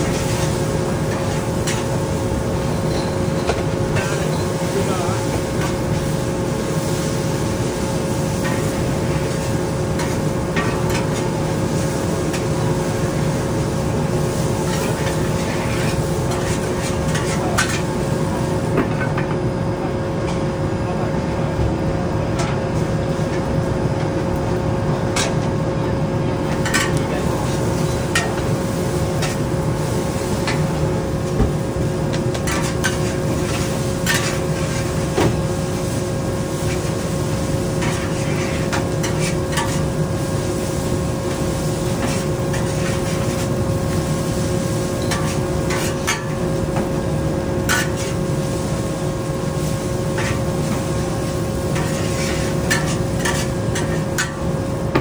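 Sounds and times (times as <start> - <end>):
noodles sizzling: 26.6 - 54.9.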